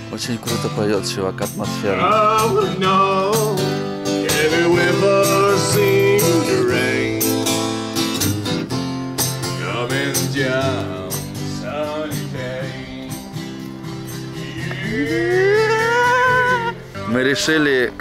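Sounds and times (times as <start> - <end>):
strummed instrumental accompaniment: 0.0 - 18.0
man singing with vibrato: 1.6 - 7.6, 9.5 - 13.5, 14.2 - 17.5.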